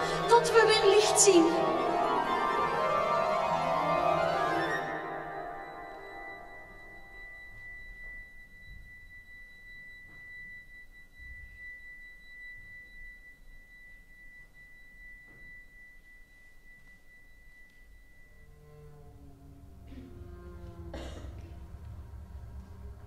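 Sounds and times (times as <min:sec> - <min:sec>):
keyboard piece: 0:00.0 - 0:07.1
high pure tone: 0:00.0 - 0:23.0
low rumble: 0:18.4 - 0:23.0.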